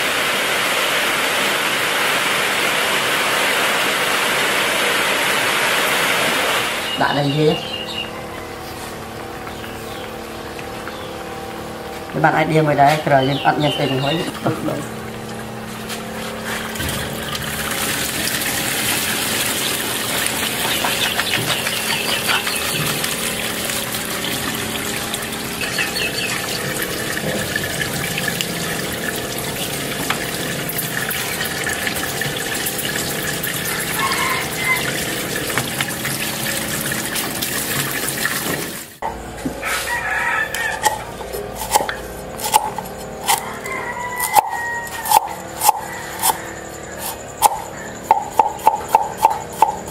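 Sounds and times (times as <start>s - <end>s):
water pouring and splashing: 16.4s - 39.0s
chickens clucking and crowing: 33.2s - 36.5s, 39.0s - 49.9s
cleaver chopping on wooden board: 41.6s - 43.4s, 47.4s - 49.8s.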